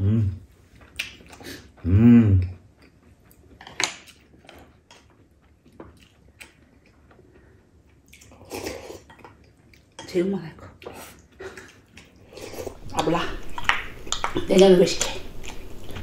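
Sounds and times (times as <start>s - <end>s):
person sipping soup: 10.9s - 16.0s.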